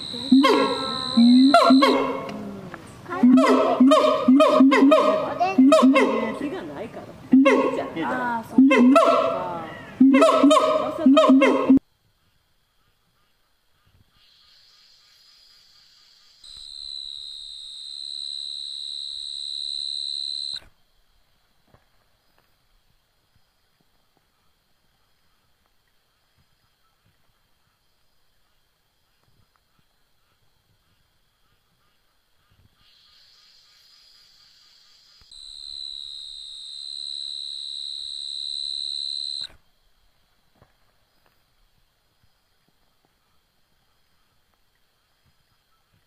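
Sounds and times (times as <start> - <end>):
high-pitched insect drone: 0.0 - 2.3, 12.7 - 20.6, 31.4 - 39.6
faint high insect hum: 0.0 - 46.0.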